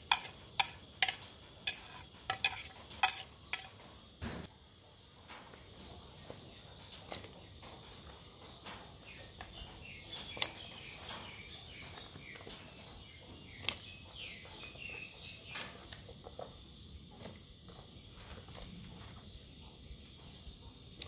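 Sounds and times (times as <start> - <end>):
birds chirping: 4.8 - 21.0.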